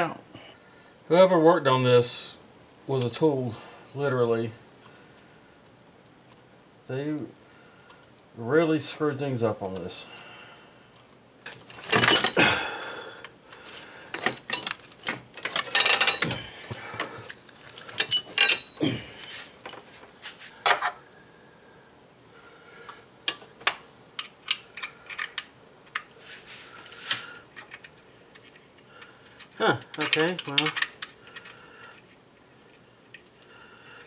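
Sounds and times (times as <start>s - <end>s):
metal tools clinking on engine parts: 11.6s - 12.9s, 14.1s - 19.8s.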